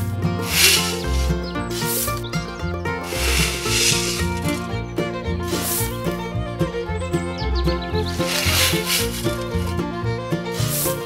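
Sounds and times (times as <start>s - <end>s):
melodic background music: 0.0s - 11.0s
swishing noise: 0.4s - 2.2s, 3.0s - 4.6s, 8.2s - 9.7s.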